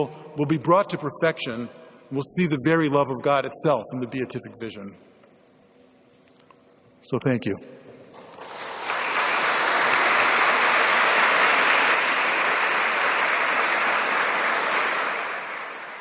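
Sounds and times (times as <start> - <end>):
audience applauding: 8.2 - 16.0.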